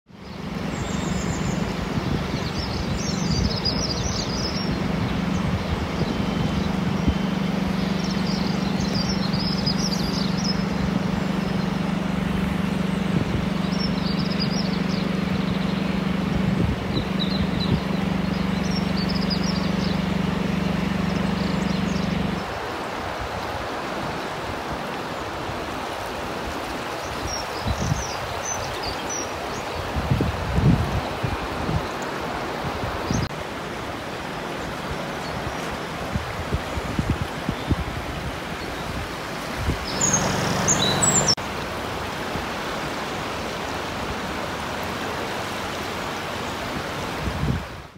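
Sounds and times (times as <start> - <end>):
small birds chirping: 0.1 - 22.8, 26.8 - 32.1, 34.4 - 41.4
rushing river water: 0.1 - 47.9
low motor hum: 0.2 - 24.0, 33.2 - 42.0.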